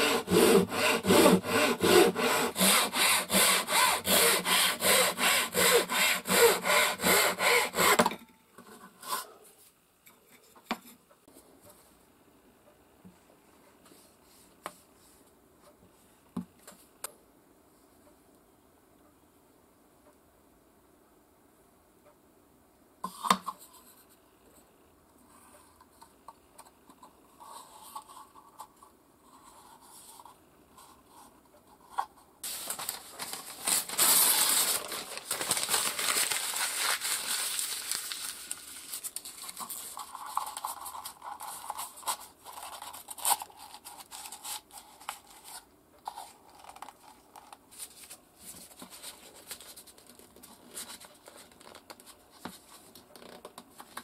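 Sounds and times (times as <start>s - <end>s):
thin paper rustling and crinkling: 32.4s - 53.0s.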